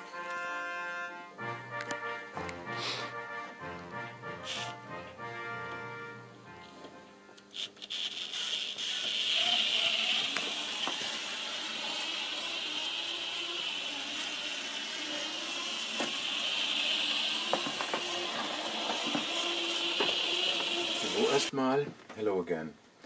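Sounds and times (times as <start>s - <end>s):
small electric motor whine: 7.4s - 21.5s.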